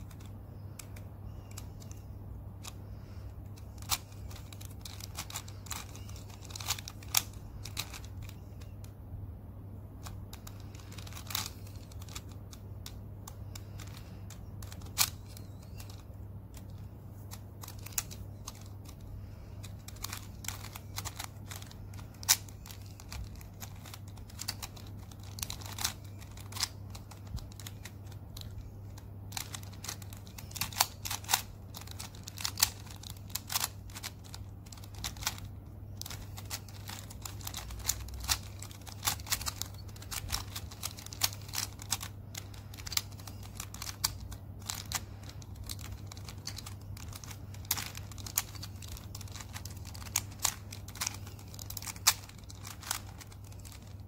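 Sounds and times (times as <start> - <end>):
puzzle pieces clicking: 0.0 - 8.9, 9.9 - 54.0.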